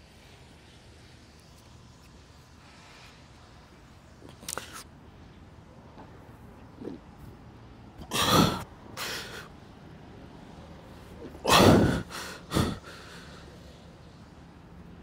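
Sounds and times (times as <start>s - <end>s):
man breathing hard: 8.1s - 9.6s, 11.3s - 13.8s.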